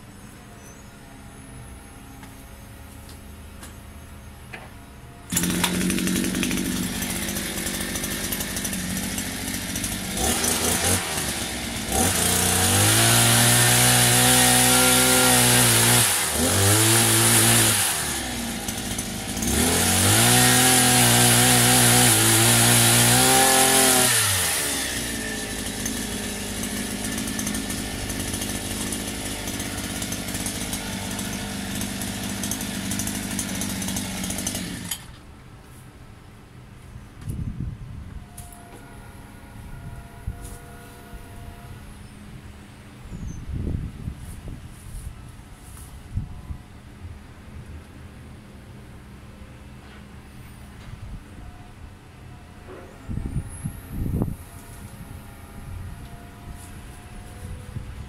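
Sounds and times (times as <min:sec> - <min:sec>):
small petrol engine revving: 0:05.3 - 0:35.1.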